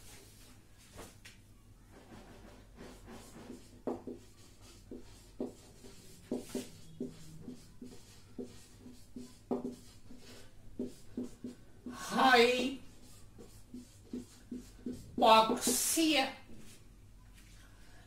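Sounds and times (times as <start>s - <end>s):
marker pen writing on board: 2.0s - 16.0s.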